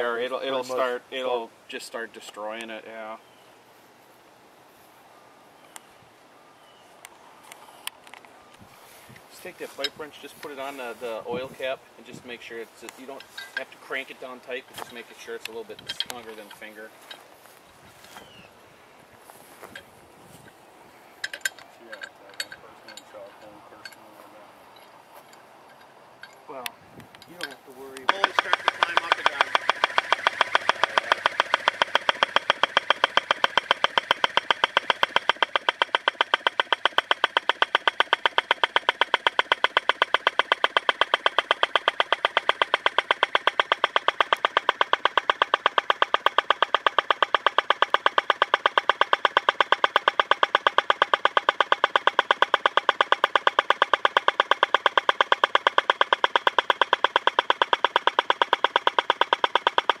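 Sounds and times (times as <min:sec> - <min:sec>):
pneumatic impactor hammering: 0:28.0 - 1:00.0.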